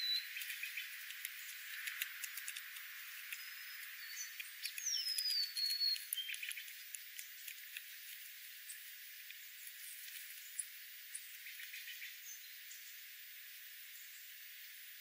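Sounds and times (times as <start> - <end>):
short high bird chips: 0.0 - 8.9
light clicks and ticks: 0.4 - 10.3.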